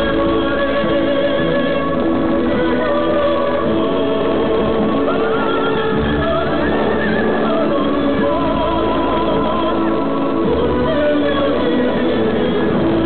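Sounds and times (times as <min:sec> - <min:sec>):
music accompaniment: 0:00.0 - 0:13.0
person singing long notes: 0:00.0 - 0:13.0.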